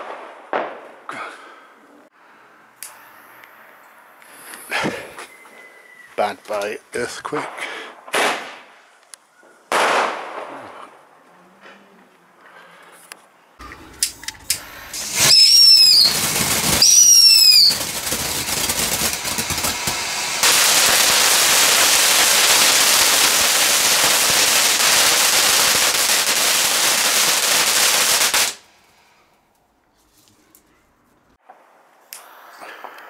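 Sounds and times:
firework pops: 14.0s - 26.3s
firework whistles: 14.0s - 28.6s
hissing crackle of sparks: 14.0s - 28.6s.

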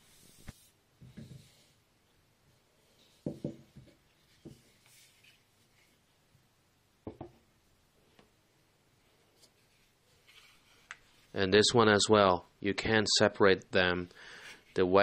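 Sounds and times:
dull wooden knocks: 3.2s - 4.6s
faint rubbing: 4.1s - 6.1s, 9.0s - 11.6s.

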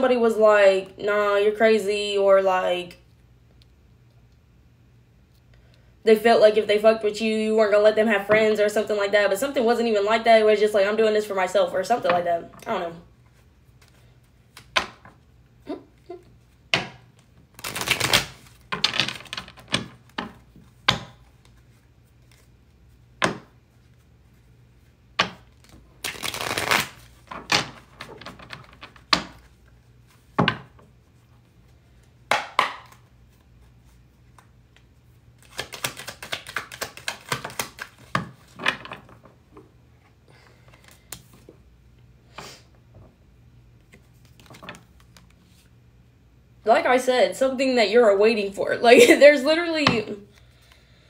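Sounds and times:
cards shuffling: 16.4s - 30.4s, 32.0s - 39.3s, 40.6s - 41.5s, 43.8s - 45.7s
cards slapped on wooden table: 16.7s - 17.1s, 23.2s - 23.6s, 32.3s - 33.1s.

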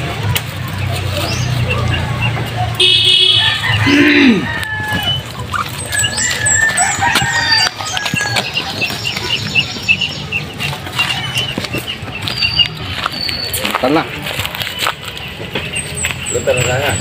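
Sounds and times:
birds chirping and calling: 0.0s - 17.0s
quick repeated bird notes: 0.7s - 4.2s.

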